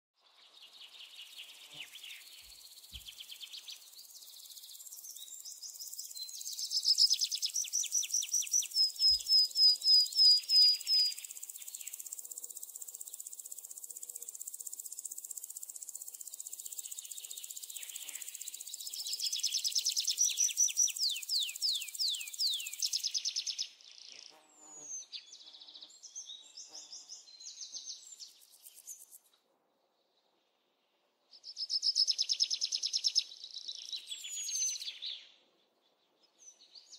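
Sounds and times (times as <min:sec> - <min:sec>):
birds singing trills: 0:00.6 - 0:13.0, 0:16.0 - 0:29.2, 0:31.4 - 0:35.4.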